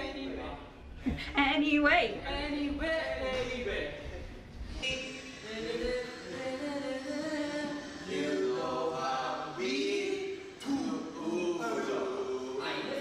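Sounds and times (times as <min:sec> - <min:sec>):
young men singing together: 0:04.8 - 0:13.0.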